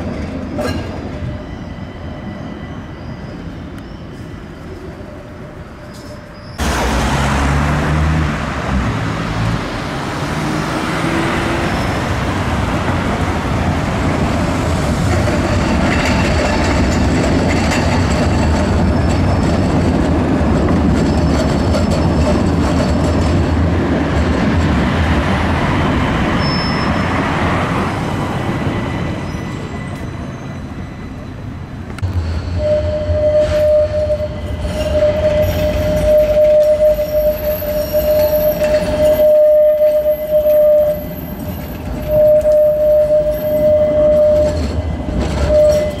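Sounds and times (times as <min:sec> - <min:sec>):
tram rolling past: 0:00.0 - 0:46.0
road traffic passing: 0:05.9 - 0:17.5, 0:23.3 - 0:46.0.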